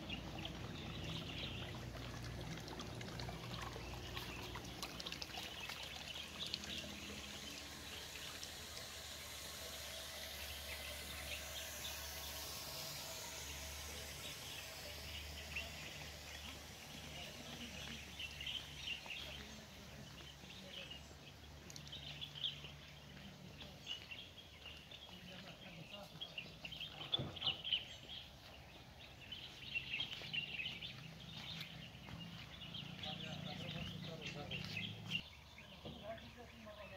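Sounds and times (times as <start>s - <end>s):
fountain trickling into basin: 0.0s - 20.9s
birds chirping: 0.0s - 36.9s
faint background hum: 0.0s - 36.9s.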